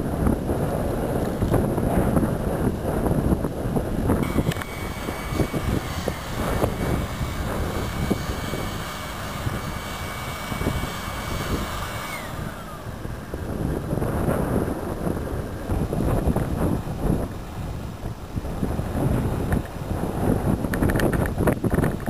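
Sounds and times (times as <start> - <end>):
wind gusts on microphone: 0.0 - 22.0
machinery high whine: 4.2 - 15.9.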